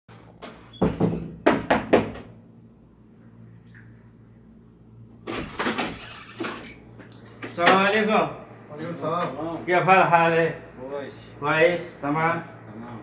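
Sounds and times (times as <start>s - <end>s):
knocking on a door: 0.8s - 2.3s.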